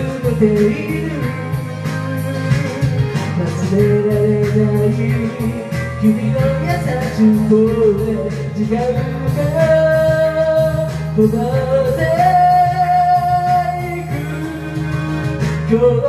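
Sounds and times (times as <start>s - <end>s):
karaoke backing track: 0.0s - 16.0s
person singing into a microphone: 0.0s - 16.0s.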